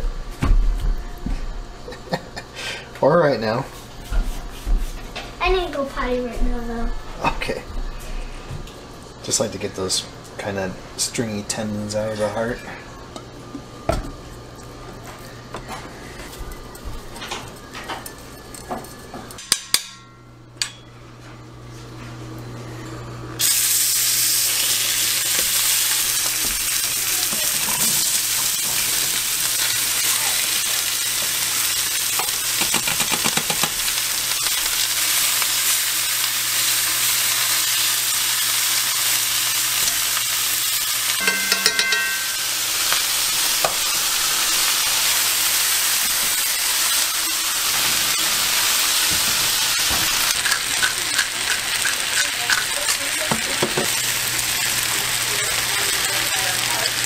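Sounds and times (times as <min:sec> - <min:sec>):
meat sizzling in a skillet: 0:23.4 - 0:57.0
metal clinks: 0:41.2 - 0:42.5
cookware clattering: 0:41.2 - 0:42.6, 0:50.2 - 0:54.0.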